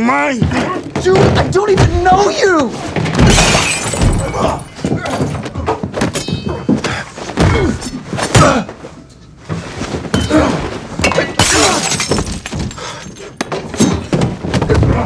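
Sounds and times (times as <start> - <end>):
glass shattering: 3.2 - 5.3, 11.0 - 13.3.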